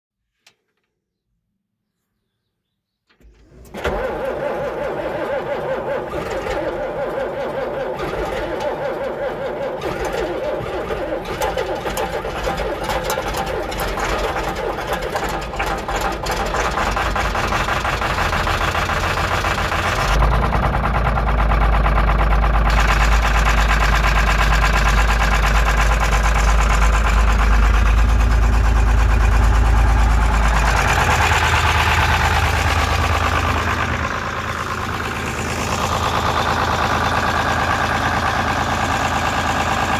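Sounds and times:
tractor diesel engine starting: 3.1s - 39.9s
tractor engine running: 3.2s - 39.9s.

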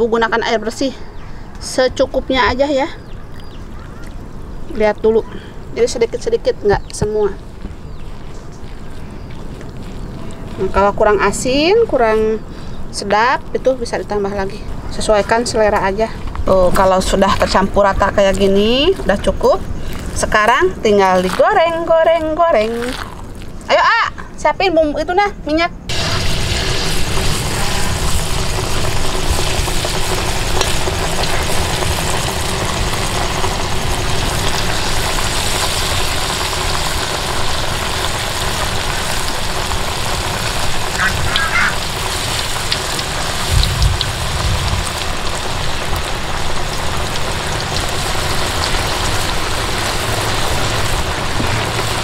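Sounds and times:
batter sizzling in hot oil: 25.9s - 52.0s.

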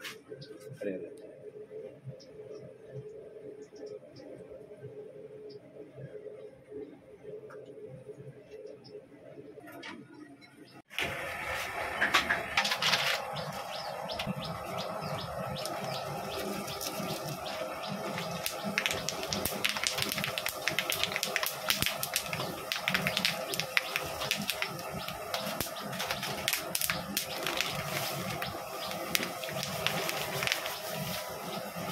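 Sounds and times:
nuts sizzling in hot oil: 11.0s - 31.9s
rapid popping: 11.9s - 31.9s.

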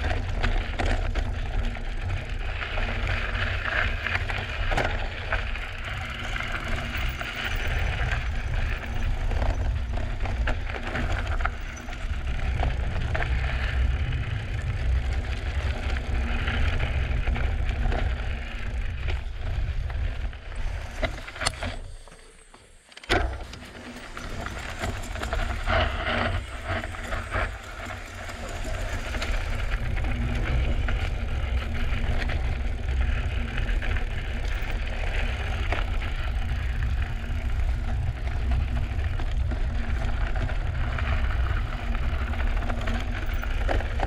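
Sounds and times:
wind rumble on microphone: 0.0s - 21.9s, 23.3s - 44.0s
bike knocking and rattling: 0.0s - 44.0s
bike tyres rolling over gravel: 0.0s - 44.0s.

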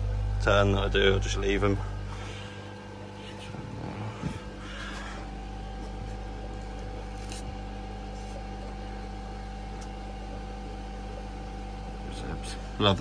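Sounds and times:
electrical hum and hiss: 0.0s - 13.0s.

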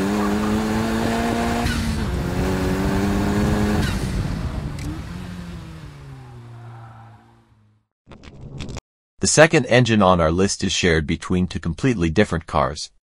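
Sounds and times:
car engine pulling hard: 0.0s - 7.8s.

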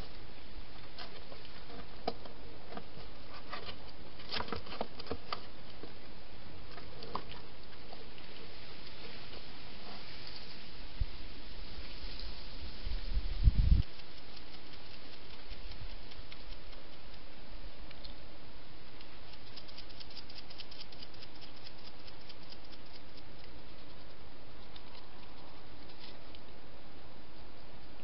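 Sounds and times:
steady microphone hiss: 0.0s - 28.0s
hedgehog eating clicking and crackling: 13.8s - 18.2s, 18.9s - 26.6s.

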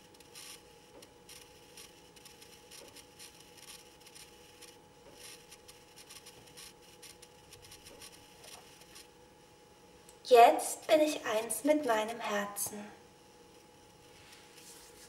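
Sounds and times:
faint electrical hum: 0.0s - 15.0s
faint scratchy rustles: 14.0s - 15.0s.

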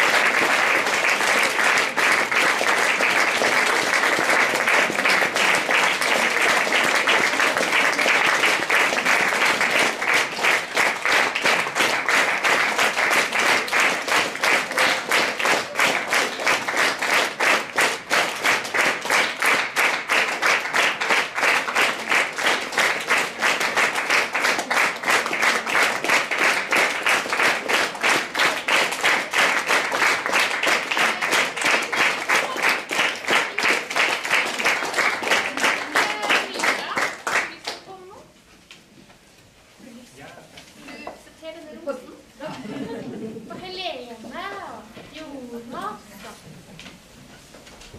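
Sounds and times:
rhythmic clapping in unison: 0.0s - 37.8s
audience applauding: 0.0s - 37.9s.

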